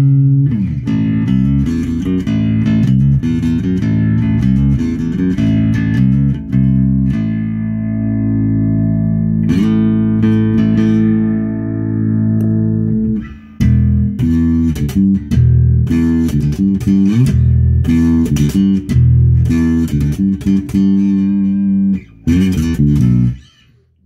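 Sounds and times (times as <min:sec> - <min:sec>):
electric bass guitar notes: 0:00.0 - 0:24.0.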